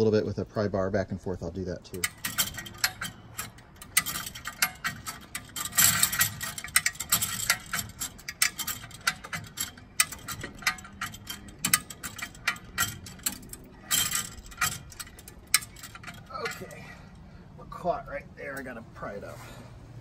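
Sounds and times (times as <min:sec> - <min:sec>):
ratchet pawl clicking: 0:02.0 - 0:17.3.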